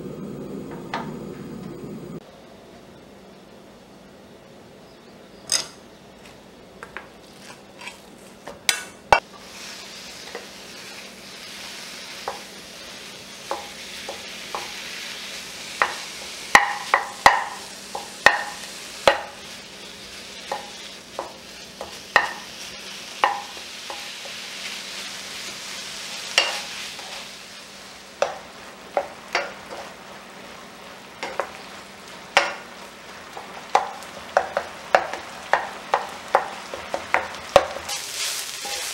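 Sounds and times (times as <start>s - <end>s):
meat sizzling in a frying pan: 9.2s - 38.9s
wooden spoon scraping a pan: 26.4s - 27.4s, 28.2s - 30.0s, 33.2s - 38.9s.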